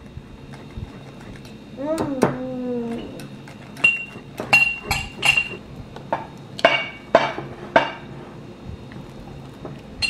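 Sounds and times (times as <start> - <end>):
utensil clinking against bowl: 2.9 - 5.6.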